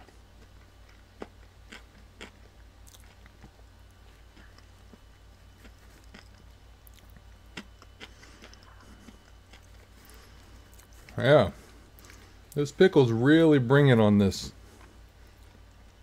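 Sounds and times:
person chewing crispy food: 0:00.0 - 0:12.6.

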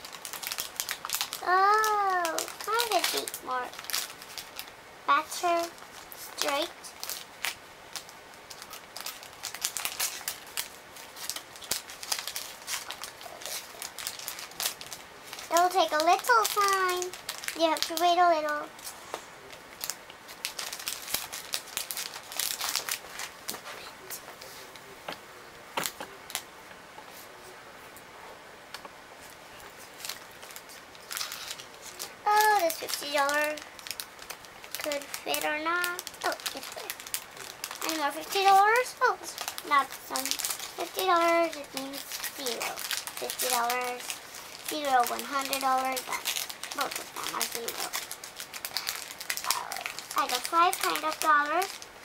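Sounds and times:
paper banknotes rustling: 0:34.2 - 0:51.8.

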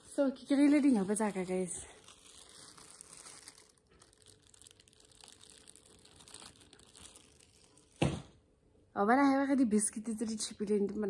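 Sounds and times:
plastic bag crinkling: 0:00.0 - 0:08.4.

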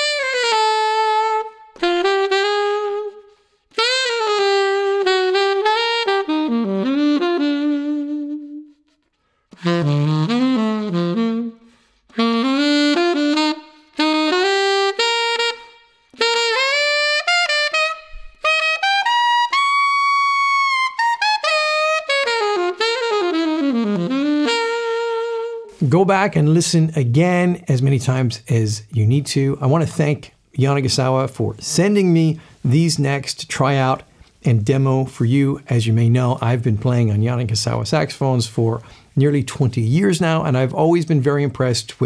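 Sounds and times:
solo saxophone melody: 0:00.0 - 0:26.0.

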